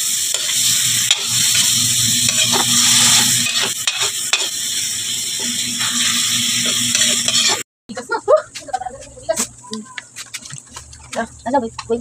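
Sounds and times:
meat and garlic sizzling in wok: 0.0s - 7.6s
spatula stirring and scraping: 0.3s - 4.5s, 5.8s - 7.6s, 8.5s - 12.0s.

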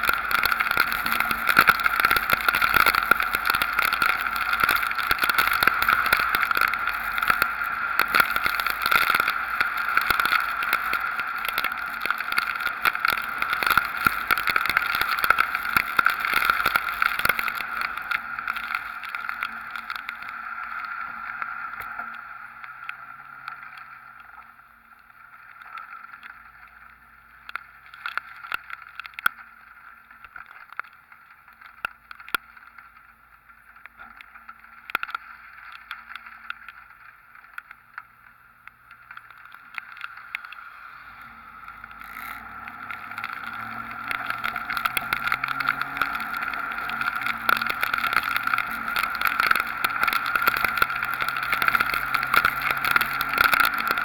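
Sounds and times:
sharp ticks: 0.0s - 22.2s, 34.9s - 54.0s
wet road noise: 0.0s - 54.0s
wind-driven rain: 0.0s - 54.0s.

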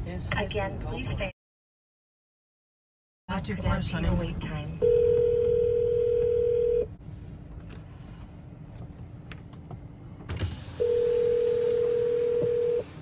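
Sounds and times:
low background hum: 3.3s - 13.0s
phone hold tone: 4.8s - 6.9s, 10.8s - 13.0s.

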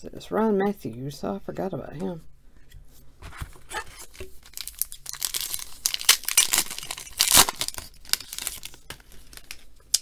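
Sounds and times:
foil card pack tearing and crinkling: 3.8s - 9.6s.

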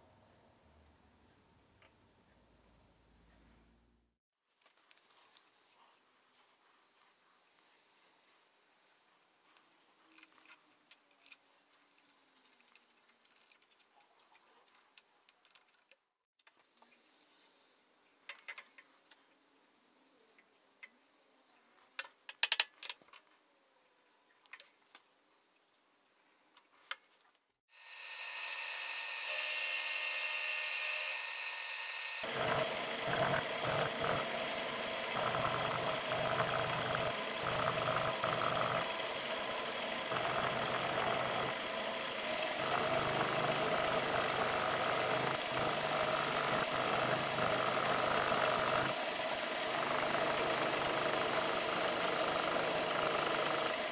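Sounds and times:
end mill cutting steel: 27.8s - 53.9s
milling machine motor whine: 27.8s - 53.9s.

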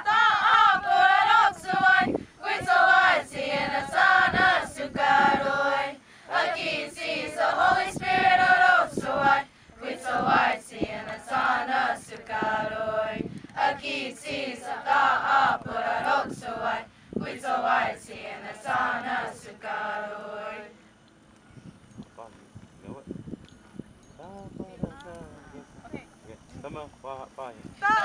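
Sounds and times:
choir singing a hymn: 0.0s - 20.8s.

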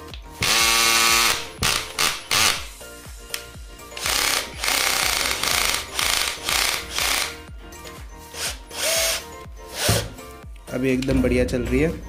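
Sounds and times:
cordless drill running: 0.4s - 2.7s, 4.0s - 7.4s, 8.3s - 10.0s.

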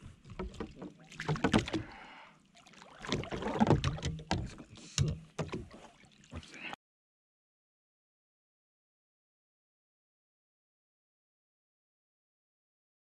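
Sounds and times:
water splashing: 0.2s - 6.8s.

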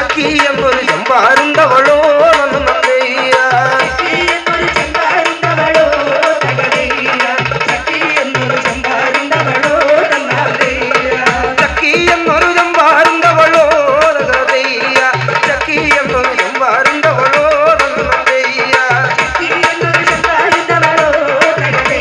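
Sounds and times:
hand drum beating: 0.0s - 22.0s
person singing into a microphone: 0.0s - 22.0s.

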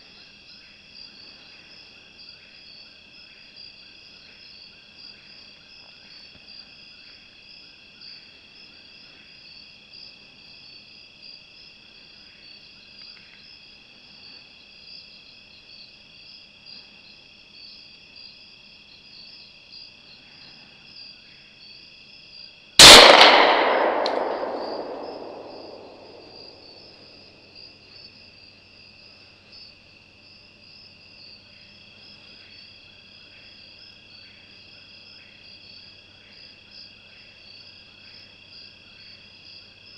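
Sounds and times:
crickets and night insects: 0.0s - 39.9s
rifle shot echoing: 22.8s - 26.7s.

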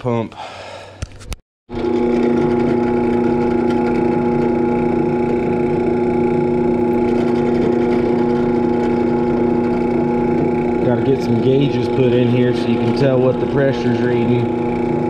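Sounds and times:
drill bit boring into wood: 1.7s - 15.0s
drill press motor humming: 1.7s - 15.0s.

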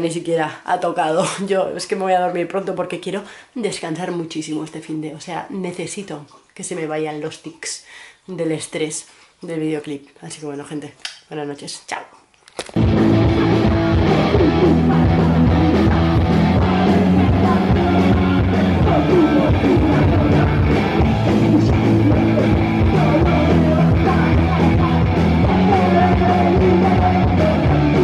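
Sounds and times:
person singing: 12.8s - 28.0s
rock band with guitars: 12.8s - 28.0s.

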